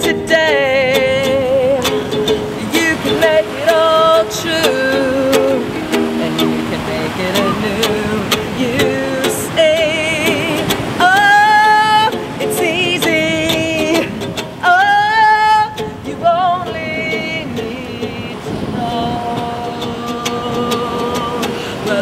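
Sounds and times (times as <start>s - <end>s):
strummed ukulele: 0.0s - 22.0s
woman singing wordless melody: 0.0s - 22.0s.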